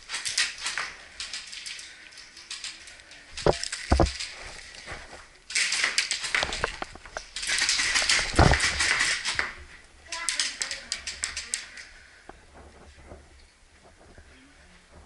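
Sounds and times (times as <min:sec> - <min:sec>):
clothing and gear rustling: 0:01.8 - 0:05.5.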